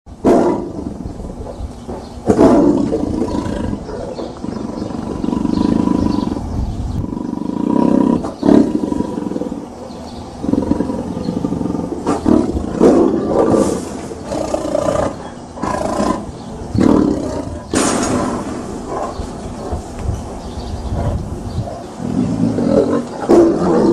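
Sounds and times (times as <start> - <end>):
tiger roaring: 0.2 - 1.4, 2.2 - 9.8, 10.4 - 23.9
tiger growling: 0.2 - 23.9.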